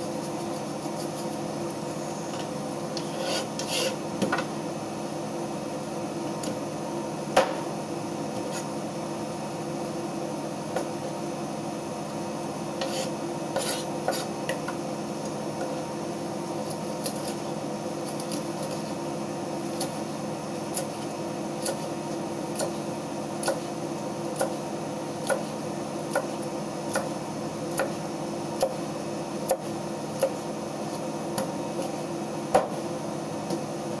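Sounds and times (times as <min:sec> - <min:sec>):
steady background hum: 0:00.0 - 0:34.0
knife chopping on cutting board: 0:03.0 - 0:04.5, 0:07.4 - 0:07.7, 0:12.8 - 0:14.8, 0:16.7 - 0:17.4, 0:20.7 - 0:21.9, 0:23.4 - 0:23.7, 0:25.2 - 0:25.5, 0:26.1 - 0:28.0, 0:28.6 - 0:28.8, 0:29.4 - 0:32.8.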